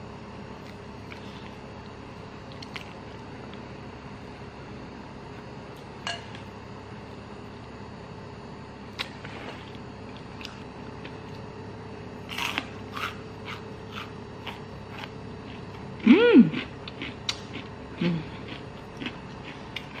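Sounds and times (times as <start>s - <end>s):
low room hum: 0.0s - 20.0s
crackly chewing: 0.6s - 3.6s, 16.5s - 20.0s.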